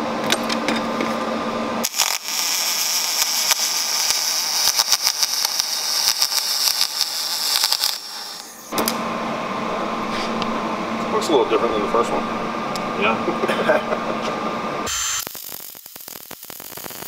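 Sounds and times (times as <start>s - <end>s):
welding arc hissing and crackling: 1.8s - 8.7s, 14.9s - 17.0s.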